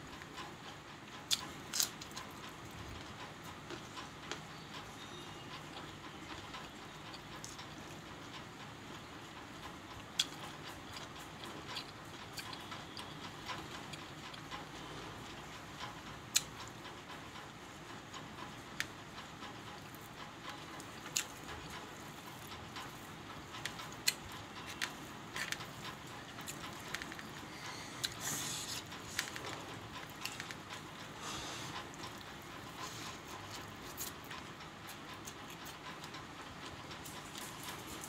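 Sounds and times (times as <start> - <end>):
fingers working rice on plate: 0.1 - 38.0
person chewing: 1.2 - 2.5, 10.2 - 15.4, 20.6 - 34.5.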